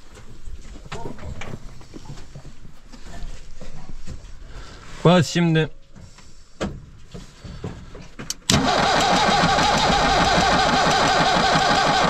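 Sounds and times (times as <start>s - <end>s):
diesel engine cranking and running: 8.3s - 12.0s.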